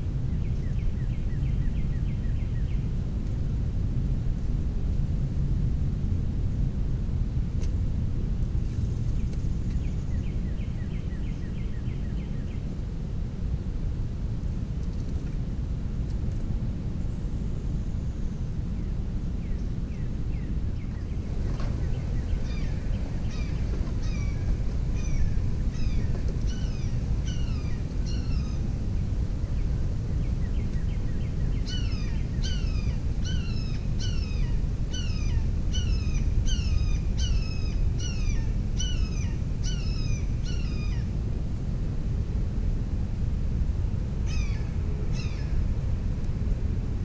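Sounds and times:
low background rumble: 0.0s - 47.0s
songbird calling: 18.8s - 41.2s, 44.3s - 45.6s.

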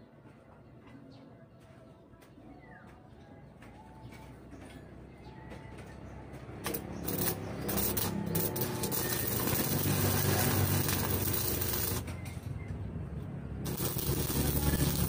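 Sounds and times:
arc welding crackling hiss: 7.1s - 12.0s, 13.7s - 15.0s.

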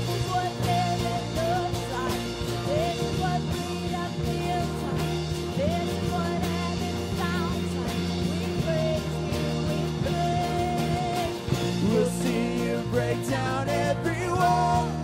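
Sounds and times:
steady drum beat: 0.0s - 15.0s
worship band music: 0.0s - 15.0s.

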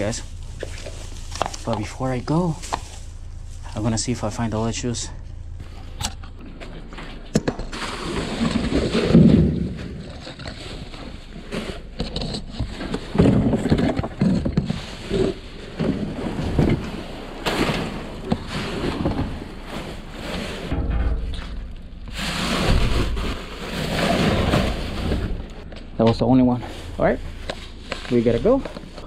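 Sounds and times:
plastic bags rustling: 0.0s - 4.4s, 13.1s - 20.7s, 21.4s - 25.7s, 26.6s - 29.0s
bumps and knocks in metal dumpster: 15.3s - 25.6s.

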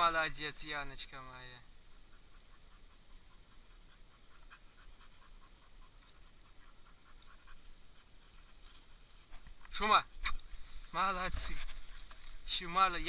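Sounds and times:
small irregular ticks: 0.0s - 13.0s
dog panting: 1.8s - 9.3s.

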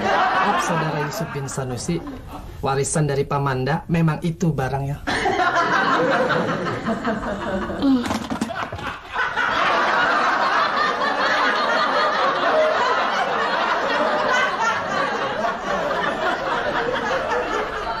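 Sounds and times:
crowd laughing: 0.0s - 2.6s, 5.1s - 18.0s.

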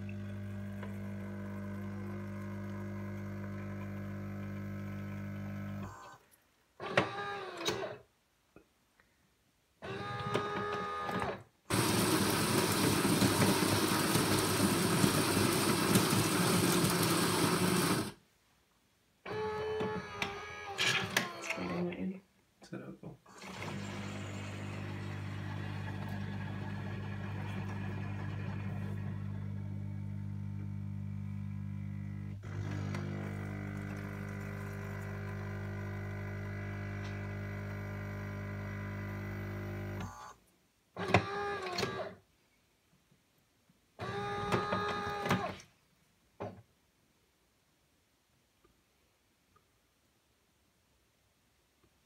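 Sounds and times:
coffee machine pump humming: 0.0s - 5.9s, 11.7s - 18.2s, 23.4s - 40.0s.

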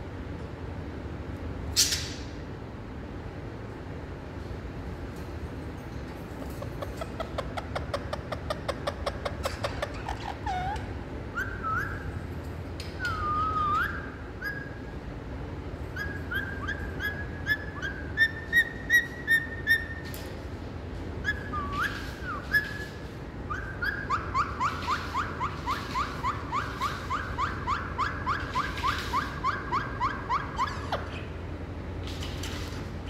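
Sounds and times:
parakeet whistles and chirps: 7.2s - 12.2s, 12.9s - 14.9s, 15.9s - 20.1s, 21.2s - 31.3s.

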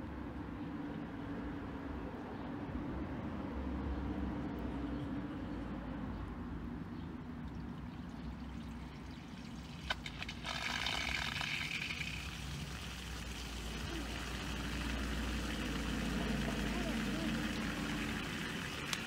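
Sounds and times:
water rushing through hose: 7.6s - 19.0s.

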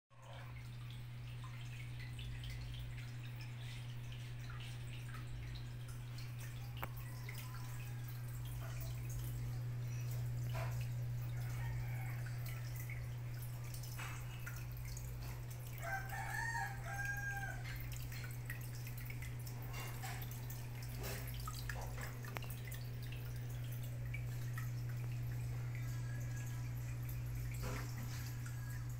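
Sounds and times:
aquarium filter motor hum: 0.2s - 28.9s
water dripping and trickling: 0.2s - 28.9s
rooster crowing: 11.3s - 12.5s, 15.8s - 17.8s.

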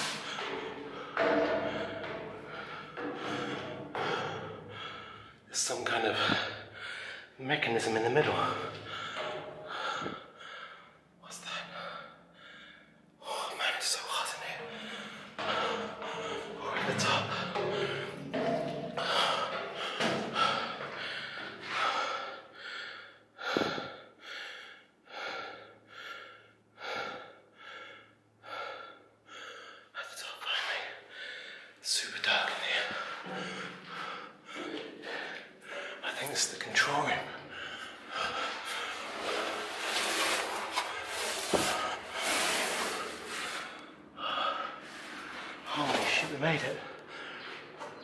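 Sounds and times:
heavy breathing: 0.0s - 5.5s, 6.1s - 7.4s, 8.4s - 13.5s, 14.1s - 45.8s
clothes rubbing: 38.6s - 43.8s.

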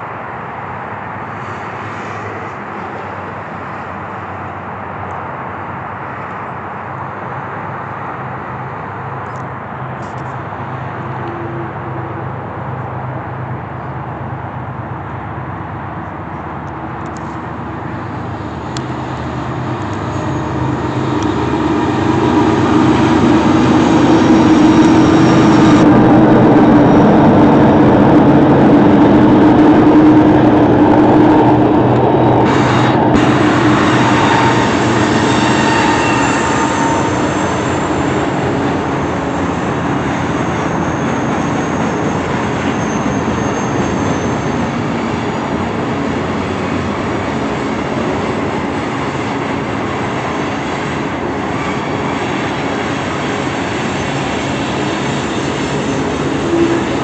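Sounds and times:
diesel locomotive engine hum: 0.0s - 57.0s
train wheels on rails: 0.0s - 57.0s
faint high wheel squeal: 19.5s - 25.8s, 32.6s - 46.0s, 51.4s - 57.0s.

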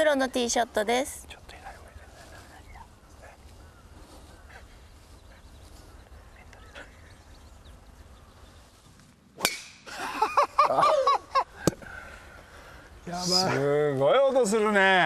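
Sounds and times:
golf club striking ball: 9.4s - 9.8s.

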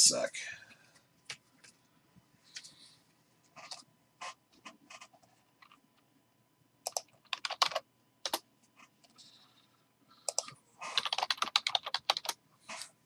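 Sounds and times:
keyboard typing: 3.6s - 5.8s, 6.8s - 8.4s, 10.2s - 12.9s.

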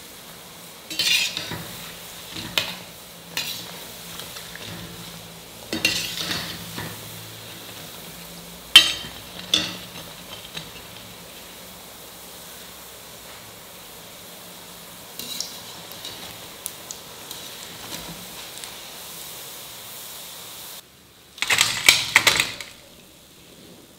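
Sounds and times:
food deep-frying in oil: 0.0s - 23.9s
strainer clinking: 0.9s - 8.0s, 8.7s - 11.1s
ladle scraping pot: 0.9s - 11.5s, 15.2s - 16.4s.

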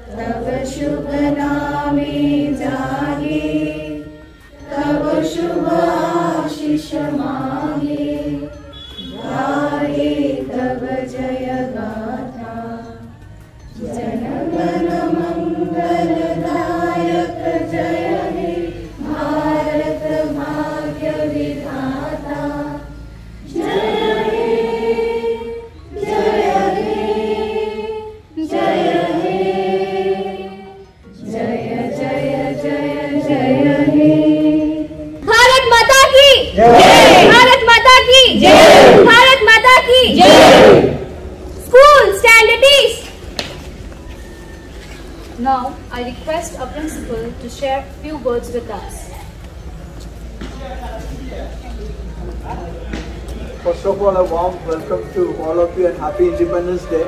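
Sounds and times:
crowd singing in unison: 0.0s - 35.3s, 36.5s - 41.4s.

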